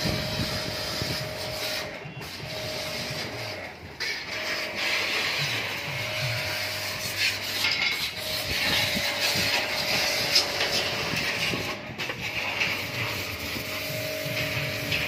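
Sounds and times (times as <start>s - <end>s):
scraping: 0.2s - 15.0s
machine hum: 4.3s - 15.0s.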